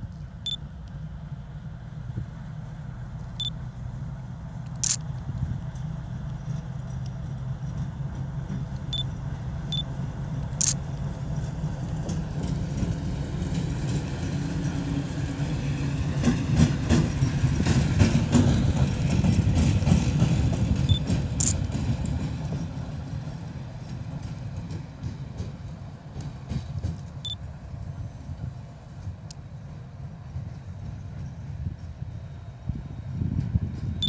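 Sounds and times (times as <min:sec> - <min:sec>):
diesel locomotive engine running: 0:00.0 - 0:34.0
train wheels clicking over rail joints: 0:04.6 - 0:29.2, 0:33.1 - 0:34.0.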